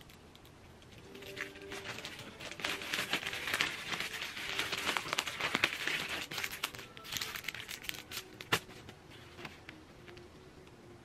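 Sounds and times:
plastic packaging crinkling: 0:01.0 - 0:09.4.

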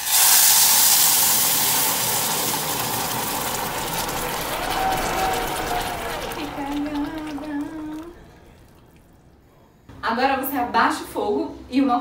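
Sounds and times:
water hissing in hot pan: 0:00.0 - 0:08.1.

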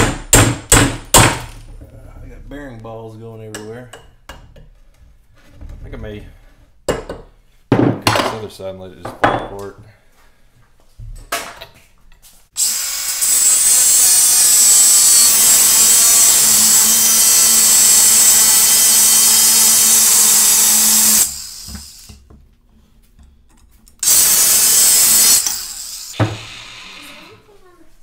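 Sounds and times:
angle grinder cutting steel: 0:12.6 - 0:22.2, 0:24.0 - 0:27.5.

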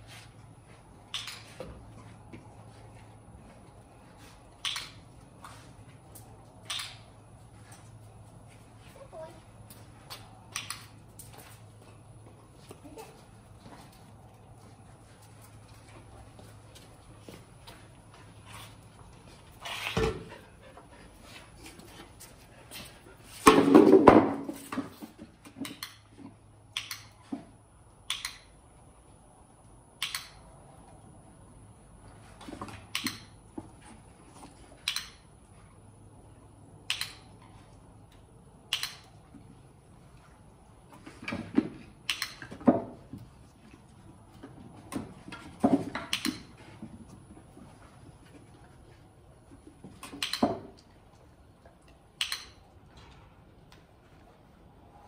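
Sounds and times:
wooden box set down on concrete: 0:23.4 - 0:25.2.

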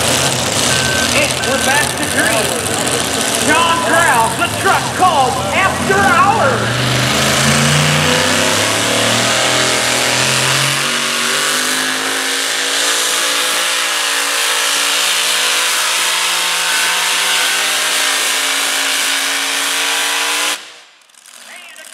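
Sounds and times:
truck engine running at high revs: 0:00.0 - 0:21.9.

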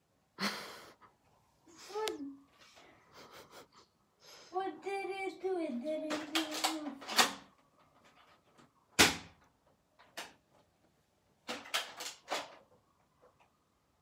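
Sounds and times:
toy blaster plastic clicks: 0:06.1 - 0:07.5.

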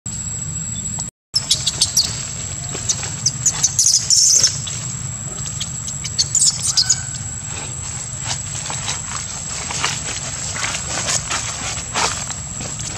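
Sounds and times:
steady high whine: 0:00.1 - 0:12.9
high-pitched chirps and squeaks: 0:00.8 - 0:07.4.

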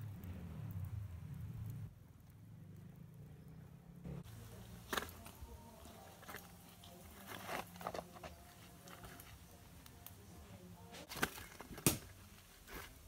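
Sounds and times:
coals shifting with clicks: 0:04.2 - 0:13.0
leaves rustling: 0:04.2 - 0:13.0.

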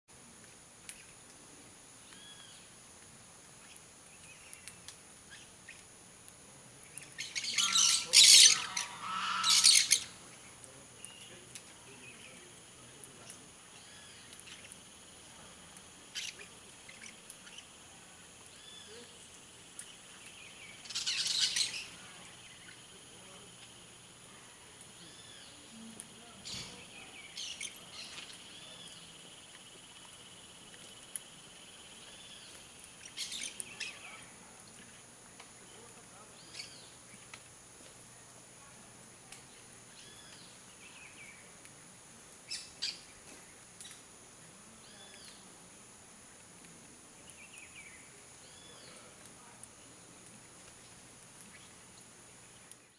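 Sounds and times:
parakeets screeching: 0:07.2 - 0:10.2, 0:20.8 - 0:22.0.

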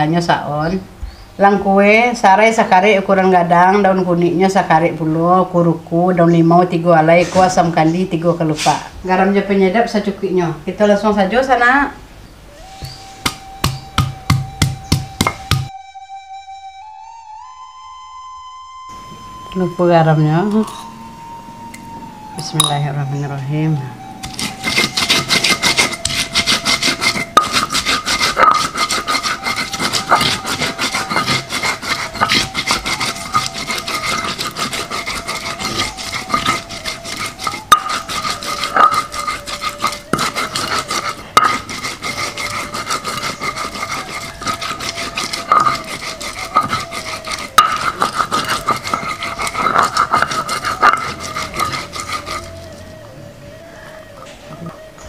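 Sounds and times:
stone grinding on stone: 0:12.7 - 0:15.7, 0:20.4 - 0:21.8, 0:24.0 - 0:53.0.

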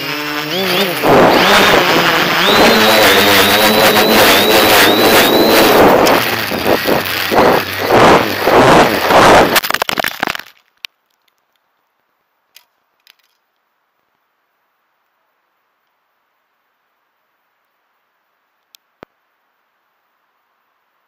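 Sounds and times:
quadcopter motors buzzing: 0:00.0 - 0:09.6
rushing wind: 0:00.9 - 0:09.6
faint ticks: 0:18.5 - 0:19.2.

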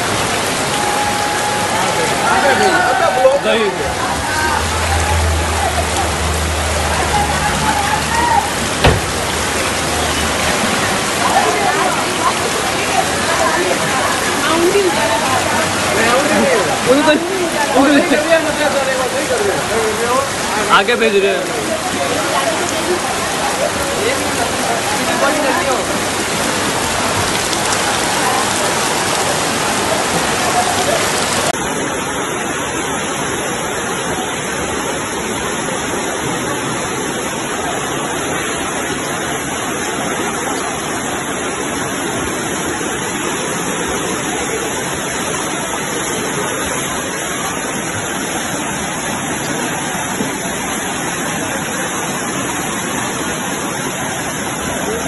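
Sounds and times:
floodwater rushing: 0:00.0 - 0:55.0
heavy rain: 0:00.0 - 0:55.0.

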